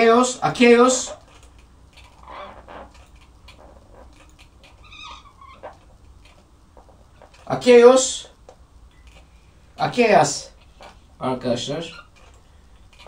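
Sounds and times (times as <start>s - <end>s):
marker squeak: 2.1s - 5.9s, 11.8s - 12.3s.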